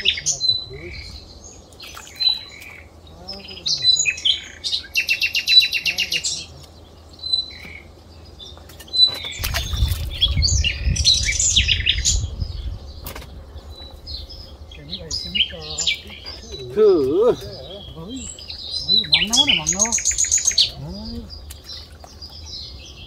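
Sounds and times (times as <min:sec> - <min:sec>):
birds chirping and whistling: 0:00.0 - 0:23.0
water splashing: 0:09.1 - 0:10.8, 0:15.4 - 0:22.8
low rumble: 0:09.4 - 0:21.6.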